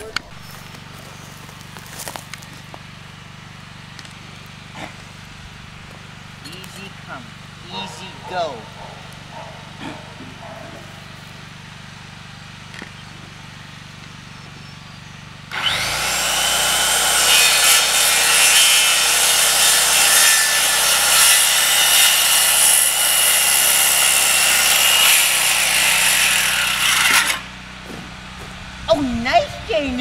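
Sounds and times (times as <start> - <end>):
power saw cutting wood: 15.5 - 28.8.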